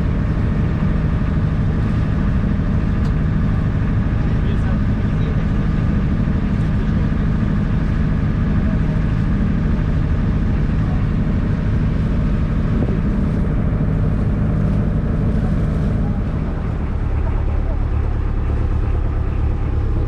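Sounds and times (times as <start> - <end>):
boat engine humming: 0.0 - 20.0.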